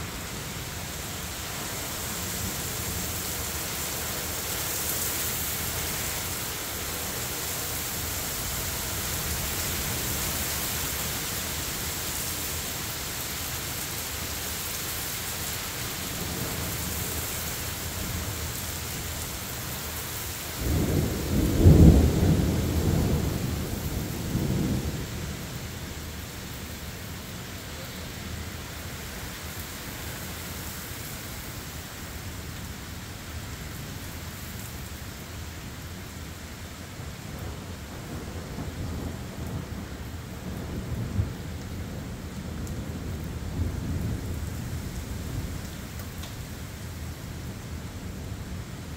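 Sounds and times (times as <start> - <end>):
heavy rain falling: 0.0 - 48.9
thunder clap and rumble: 20.6 - 25.8.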